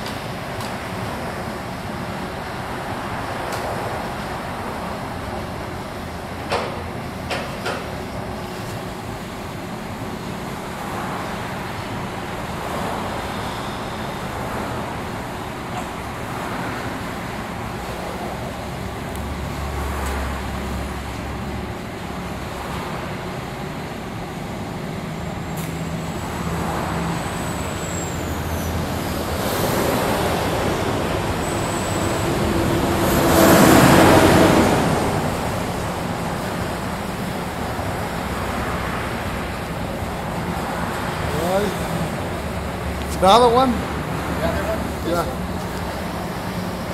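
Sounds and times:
thin high whistle: 13.3s - 14.3s.

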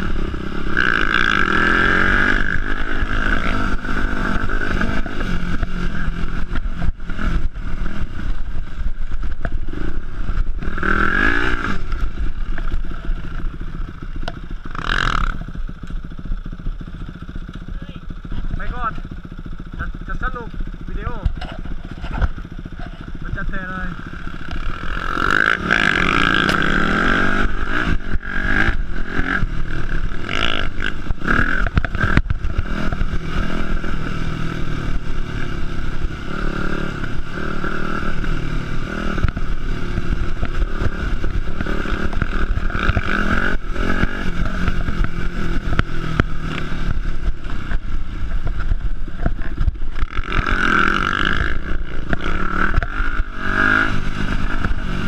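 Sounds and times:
dirt bike engine revving: 0.0s - 55.0s
knocks and rattles from bouncing bike: 10.4s - 34.0s.

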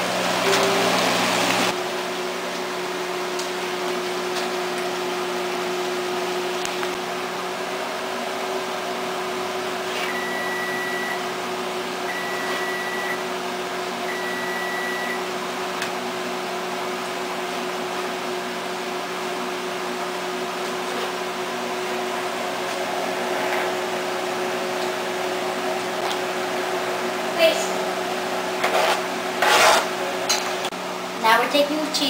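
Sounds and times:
kitchen appliance fan whirring: 0.0s - 32.0s
kitchen timer beeping: 10.1s - 11.2s, 12.1s - 13.2s, 14.1s - 15.2s.

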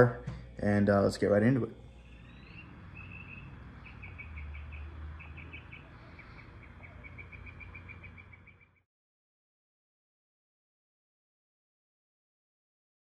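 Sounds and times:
low steady hum: 0.0s - 8.8s
small bird chirping: 1.8s - 8.8s.

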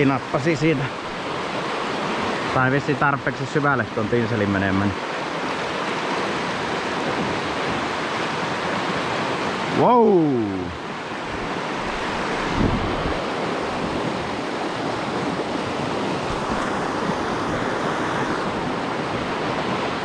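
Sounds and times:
river rapids rushing: 0.0s - 20.0s
wind on microphone: 10.5s - 20.0s.

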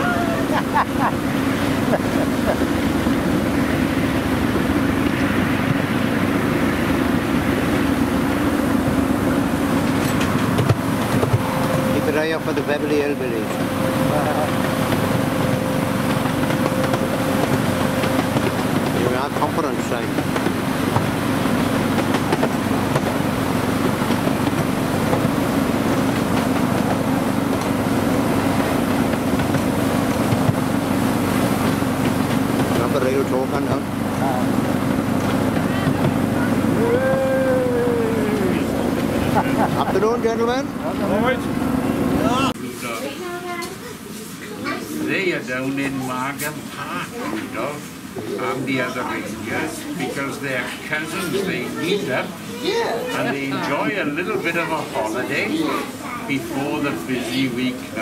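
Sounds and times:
miniature train rumbling on rails: 0.0s - 58.0s.

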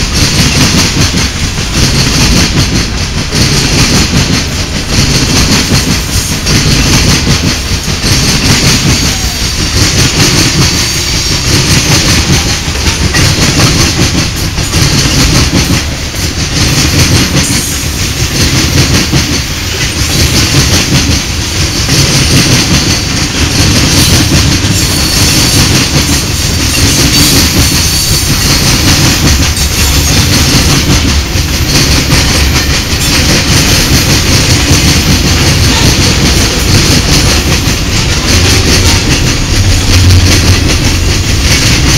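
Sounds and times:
train wheels rumbling on rails: 0.0s - 41.9s.

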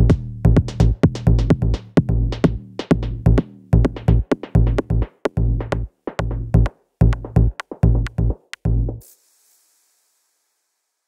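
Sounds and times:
electronic music with drum machine: 0.0s - 9.5s
faint hiss: 9.0s - 11.0s.

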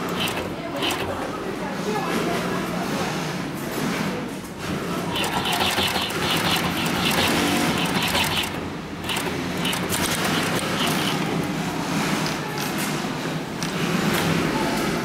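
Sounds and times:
industrial sewing machine running: 0.0s - 1.8s, 4.6s - 12.2s.

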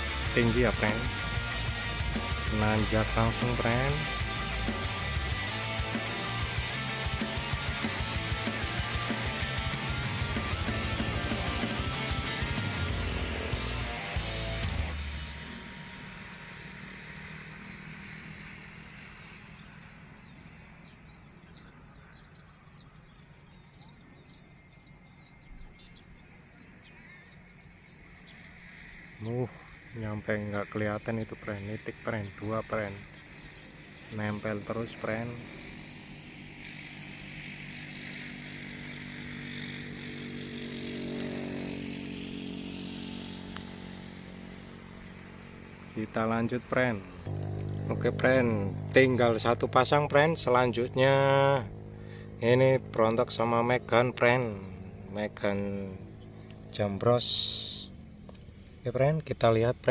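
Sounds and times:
background music: 0.0s - 17.4s
steady low hum: 0.0s - 59.9s
vehicle engine running: 0.0s - 59.9s.

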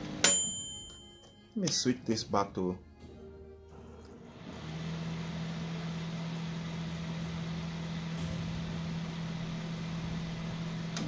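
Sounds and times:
microwave oven hum: 0.0s - 1.0s, 3.7s - 11.0s
cooling fan rushing: 3.8s - 11.0s.

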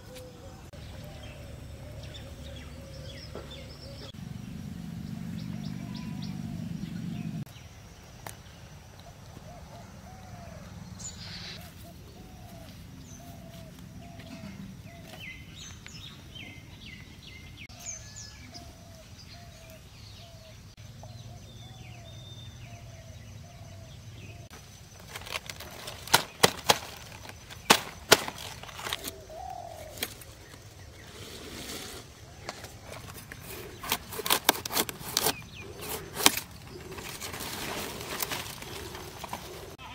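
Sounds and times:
birds chirping: 0.0s - 39.9s
plant stems cracking and snapping: 25.0s - 29.2s.

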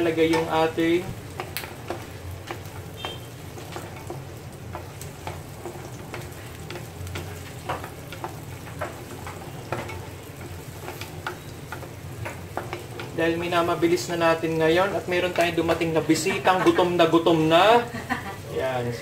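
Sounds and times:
onions sizzling in frying pan: 0.0s - 19.0s.

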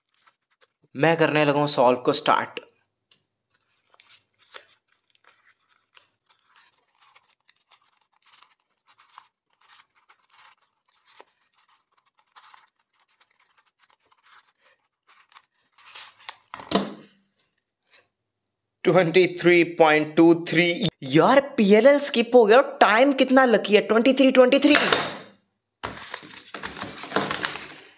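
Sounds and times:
cube turning clicks and rustles: 3.1s - 16.7s, 25.8s - 27.9s.

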